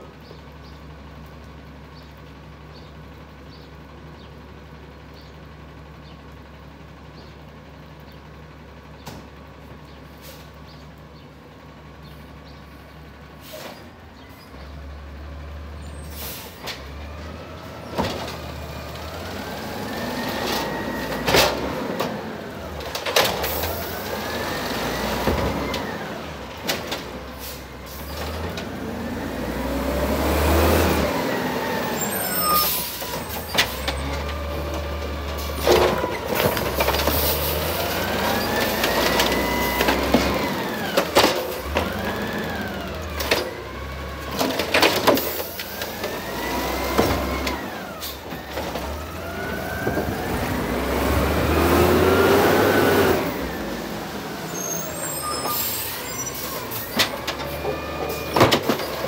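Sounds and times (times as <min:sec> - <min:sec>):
diesel engine revving with whine: 0:14.1 - 0:59.0
garbage carts banging: 0:17.8 - 0:29.2, 0:31.1 - 0:50.7, 0:54.3 - 0:59.0.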